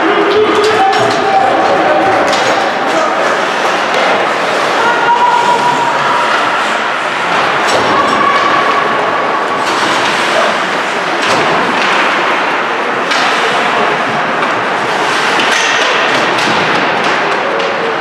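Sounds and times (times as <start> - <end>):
skates on ice: 0.1 - 18.0.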